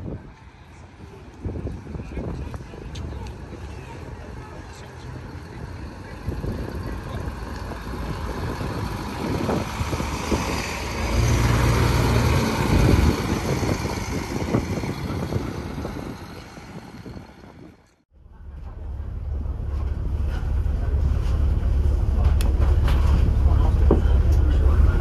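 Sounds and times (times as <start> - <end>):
diesel bus engine running: 0.0 - 25.0.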